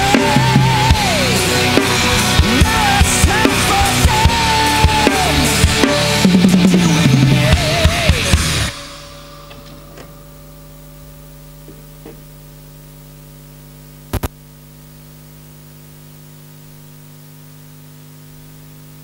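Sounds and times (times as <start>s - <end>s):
electrical mains hum: 0.0s - 19.0s
sharp double click: 14.1s - 14.4s.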